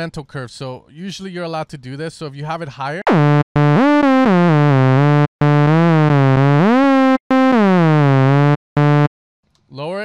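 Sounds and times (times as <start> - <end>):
buzzy synthesizer notes gliding: 3.1 - 9.1.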